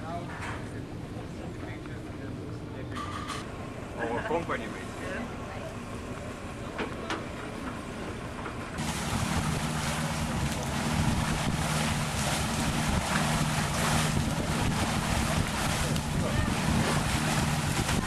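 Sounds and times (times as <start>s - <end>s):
water rushing past boat hull: 4.6s - 18.0s
steady low drone: 8.8s - 18.0s
wind buffeting microphone: 8.8s - 18.0s.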